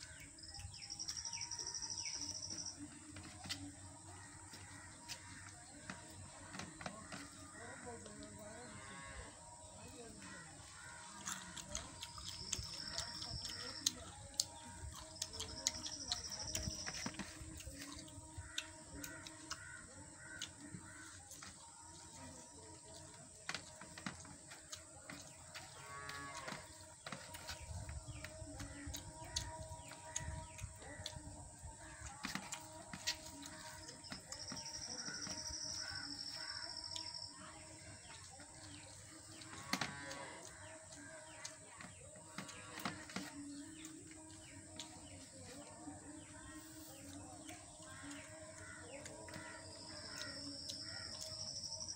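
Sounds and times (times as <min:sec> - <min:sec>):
man chewing food: 0:08.2 - 0:45.8.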